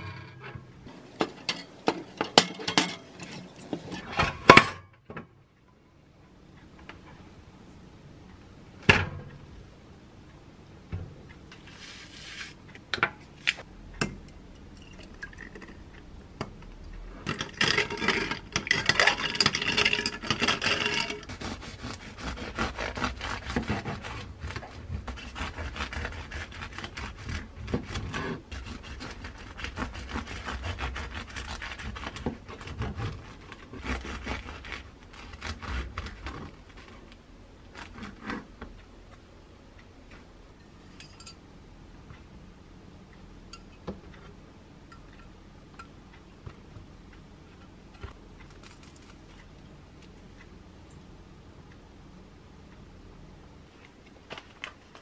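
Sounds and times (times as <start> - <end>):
bread knife sawing through loaf: 21.2 - 36.8.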